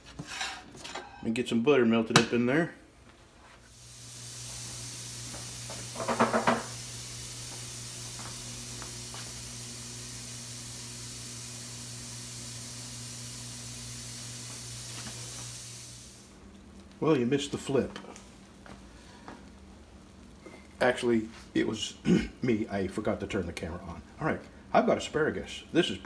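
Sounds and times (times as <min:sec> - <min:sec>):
steady low hum: 0:02.7 - 0:26.0
butter sizzling in a skillet: 0:03.7 - 0:17.8.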